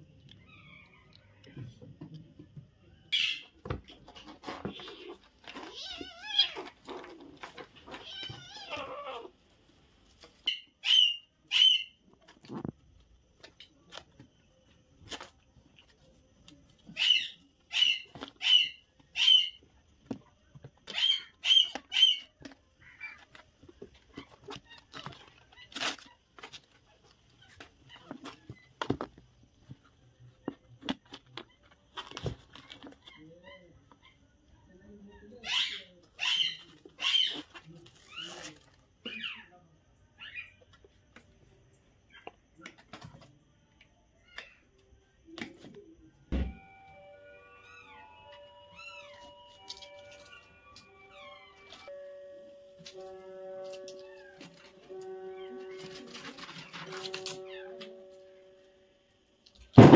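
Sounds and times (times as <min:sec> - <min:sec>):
kittens scuffling: 0:03.6 - 0:10.5, 0:12.1 - 0:34.1, 0:52.8 - 0:58.2
kittens meowing: 0:05.6 - 0:06.8, 0:07.8 - 0:09.4.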